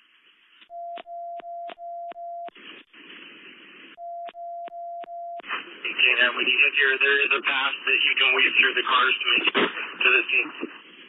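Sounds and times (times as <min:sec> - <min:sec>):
radio static: 0:05.4 - 0:11.0.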